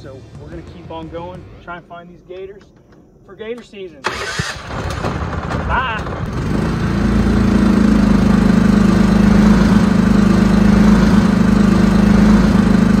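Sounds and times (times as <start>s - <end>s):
boat motor engine running: 6.3s - 13.0s.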